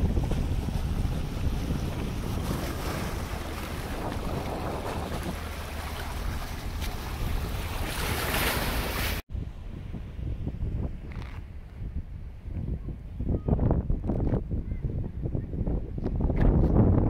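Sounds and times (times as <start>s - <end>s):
waves washing against seawall: 0.0s - 9.2s
wind buffeting microphone: 0.0s - 17.0s.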